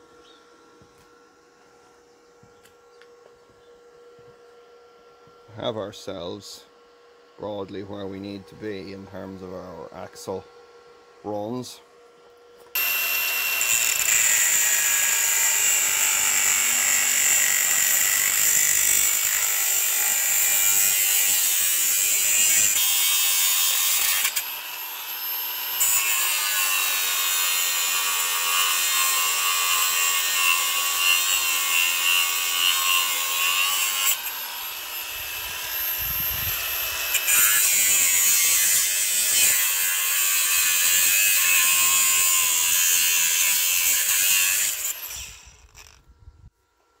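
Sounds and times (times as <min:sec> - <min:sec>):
angle grinder cutting metal: 0:12.7 - 0:46.0.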